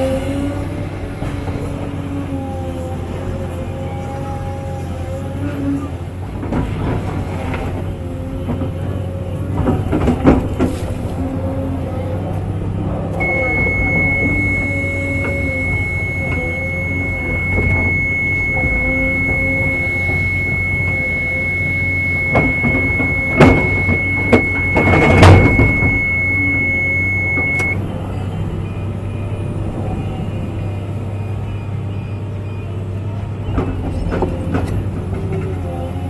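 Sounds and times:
excavator engine drone: 0.0 - 36.0
excavator bucket clunks: 13.2 - 26.4
thin high whine: 13.2 - 27.8.

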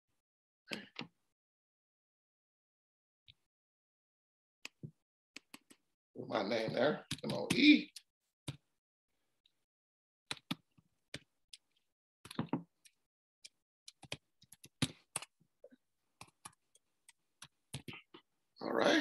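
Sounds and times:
keyboard typing clicks: 10.3 - 10.6, 13.9 - 15.3.

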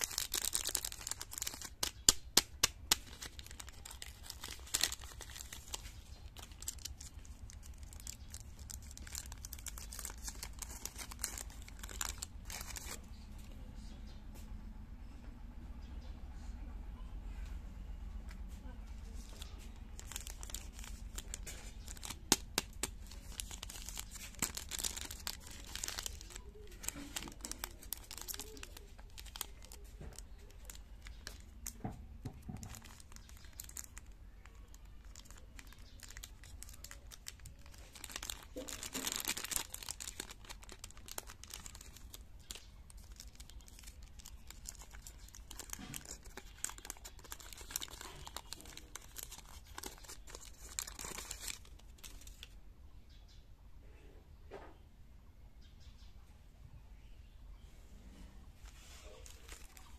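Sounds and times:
foil paper rustling: 0.0 - 13.0, 19.0 - 52.5, 58.6 - 59.9
wrapper crinkling and tearing: 0.0 - 13.2, 19.0 - 52.6, 58.6 - 59.9.

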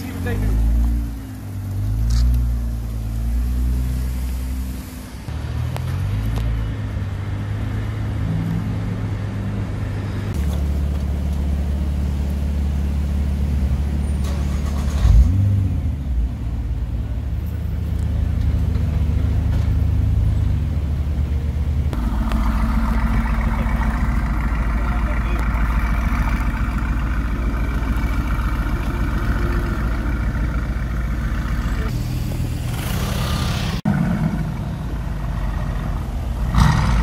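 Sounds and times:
car engine idling: 10.3 - 37.0
second car engine idling: 21.2 - 32.6.

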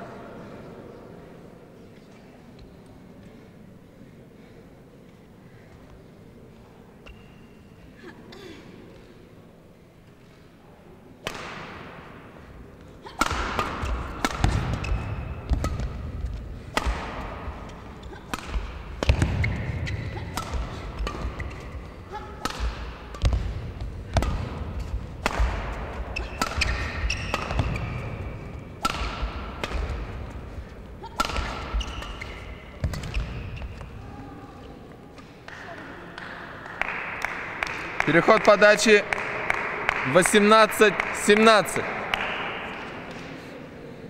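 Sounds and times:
shoe squeaks: 7.0 - 7.8, 19.3 - 20.3, 26.1 - 28.4, 31.0 - 34.0
rackets hitting shuttlecock: 11.2 - 34.0.

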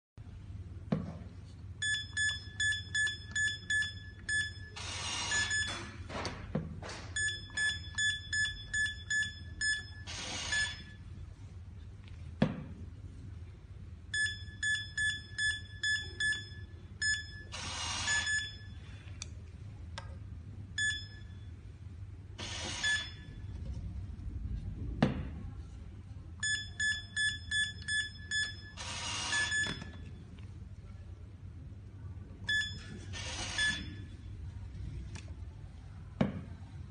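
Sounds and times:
keypad short beeps: 1.8 - 6.0, 7.2 - 11.0, 22.7 - 23.4, 26.4 - 30.1, 32.5 - 34.1.

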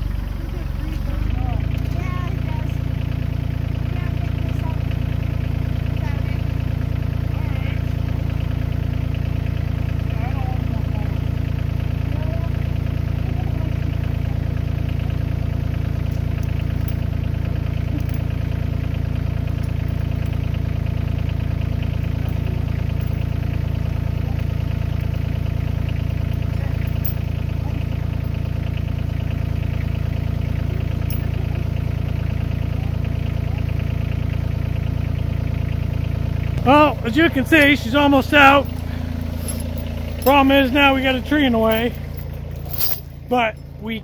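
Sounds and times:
diesel tractor engine idling: 0.0 - 44.0.

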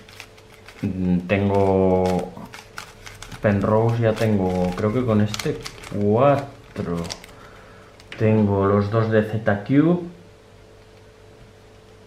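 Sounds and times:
faint steady hum: 0.0 - 12.0
man speaking: 0.8 - 2.5, 3.4 - 7.2, 8.1 - 10.2.

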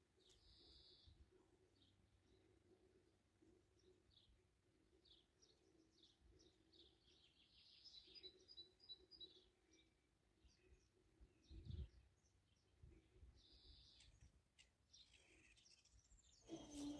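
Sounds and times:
birds chirping: 5.0 - 16.9.

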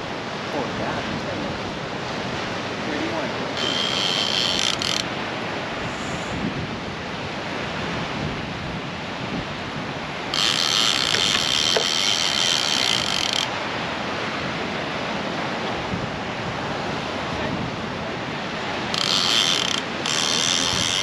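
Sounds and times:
fishing reel buzzing: 3.5 - 5.2, 10.3 - 13.5, 18.8 - 21.0
steady rushing noise: 5.0 - 10.4.

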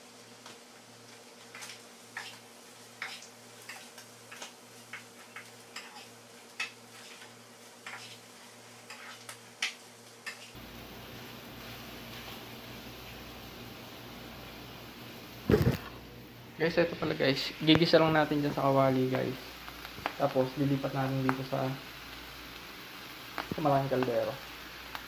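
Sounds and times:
metal utensil scraping frying pan: 3.0 - 4.5, 5.2 - 10.6.

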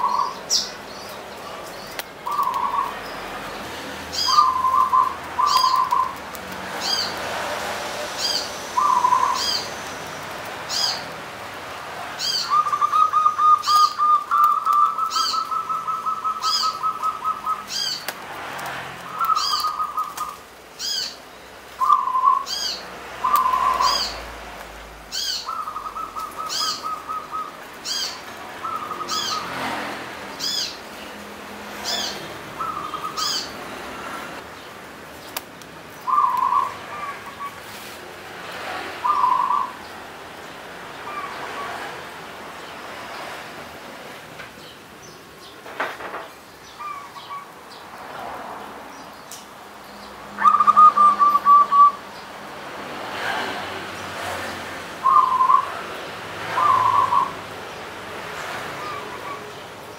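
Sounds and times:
bird high chirps: 0.0 - 3.2, 4.1 - 6.2, 8.2 - 9.8, 12.2 - 18.1, 19.1 - 21.2, 21.8 - 24.2, 25.1 - 29.5, 31.8 - 33.6, 36.0 - 37.6, 39.0 - 39.9, 50.4 - 52.0, 55.0 - 55.7, 56.5 - 57.4.

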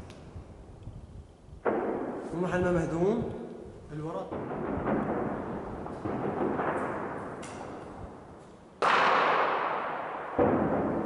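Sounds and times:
gunshots echoing: 1.6 - 2.3, 4.2 - 11.0
loud explosion: 4.3 - 7.4, 8.8 - 11.0.

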